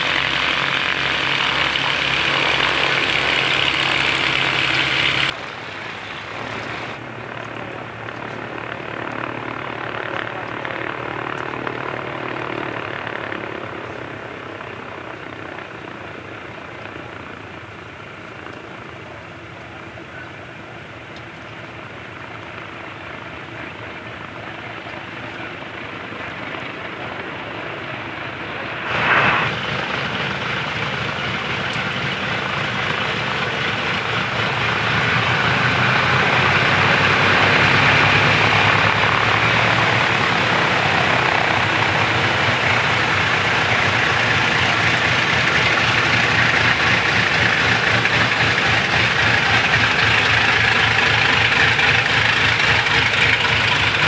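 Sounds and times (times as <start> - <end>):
propeller engines droning: 0.0 - 54.0
loud engine burst: 28.5 - 30.6.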